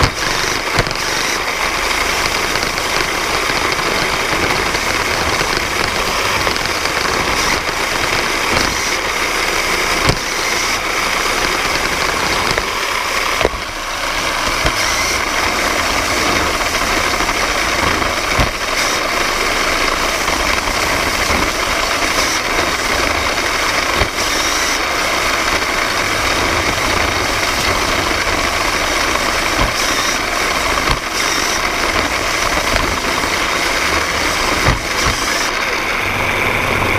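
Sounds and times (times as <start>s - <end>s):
robot motors whirring and rattling: 0.0s - 36.9s
sharp knocks: 10.0s - 10.8s, 16.4s - 19.1s, 30.8s - 33.1s, 34.5s - 35.4s.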